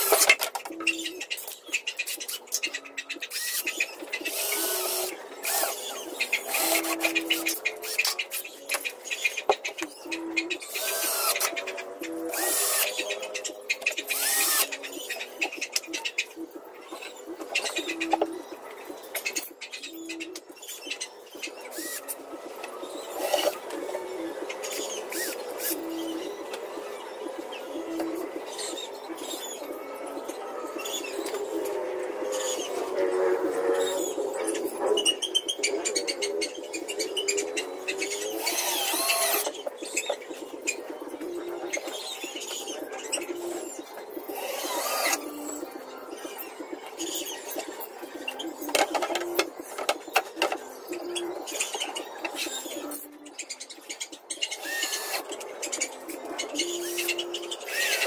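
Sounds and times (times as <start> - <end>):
pigeons cooing: 0.0 - 58.0
cordless drill running: 14.2 - 14.7.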